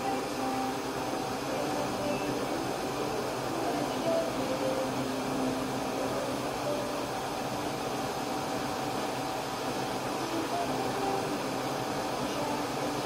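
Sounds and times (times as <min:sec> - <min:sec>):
laser cutter fan and air noise: 0:00.0 - 0:13.0.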